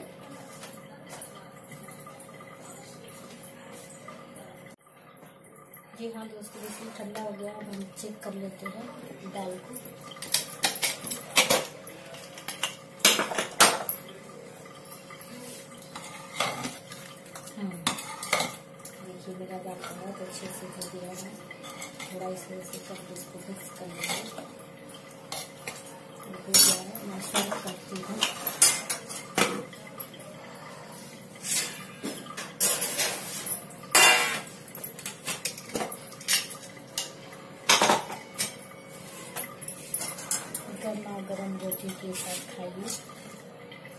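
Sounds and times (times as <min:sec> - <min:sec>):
metal cookware clinking: 0:06.5 - 0:14.2, 0:15.8 - 0:30.3, 0:31.4 - 0:43.3.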